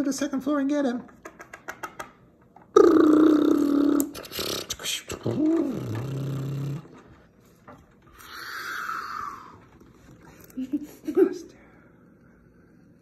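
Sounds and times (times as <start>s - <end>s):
person making vocal sound effects: 2.7s - 6.9s.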